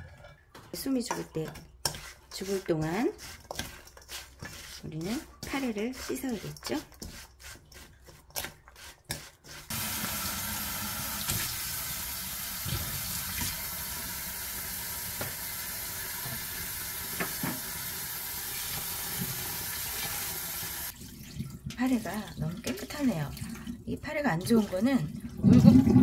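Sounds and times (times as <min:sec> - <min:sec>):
tap water running into a bowl: 0:09.7 - 0:26.0.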